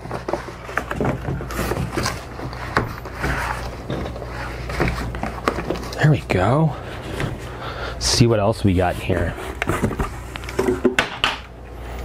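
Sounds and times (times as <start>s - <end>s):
cardboard rustles and scrapes: 0.0s - 7.5s, 8.6s - 10.7s.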